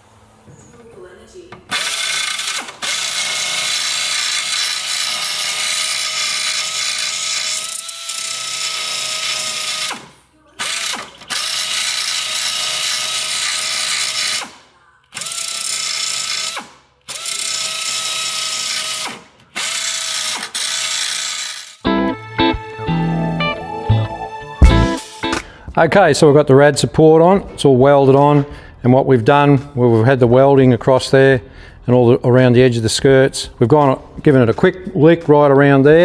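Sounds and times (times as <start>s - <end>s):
belt sander grinding steel: 1.7s - 9.9s, 15.6s - 21.8s.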